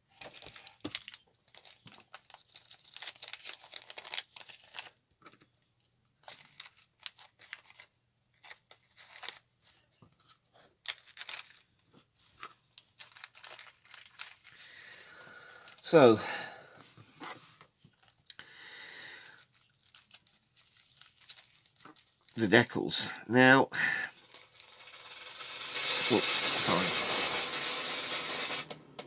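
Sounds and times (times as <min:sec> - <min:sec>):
plastic bag crinkling: 0:00.1 - 0:05.0, 0:10.8 - 0:11.8, 0:12.4 - 0:14.9, 0:19.4 - 0:22.4, 0:24.2 - 0:28.7.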